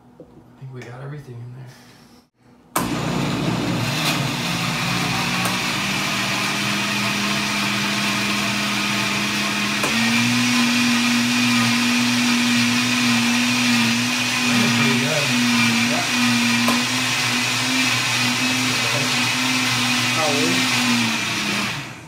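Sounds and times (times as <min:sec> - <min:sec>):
blender click: 0:02.8 - 0:03.2, 0:03.8 - 0:07.6, 0:09.2 - 0:12.0, 0:12.8 - 0:21.9
blender motor running: 0:02.8 - 0:22.0.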